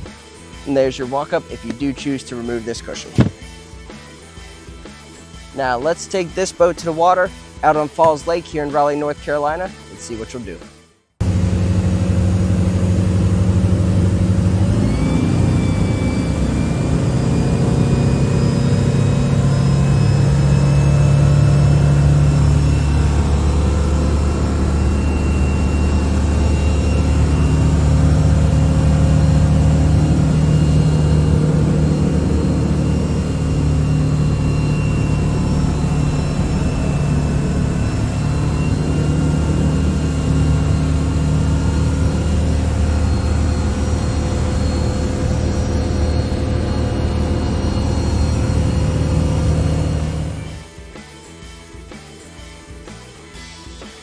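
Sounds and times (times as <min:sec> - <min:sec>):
boat engine running: 0:00.8 - 0:03.6, 0:11.2 - 0:50.6.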